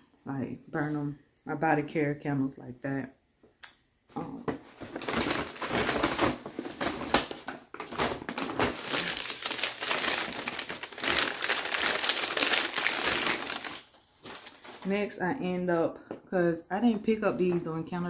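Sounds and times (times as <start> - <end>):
tissue paper rustling and crinkling: 4.6 - 15.1.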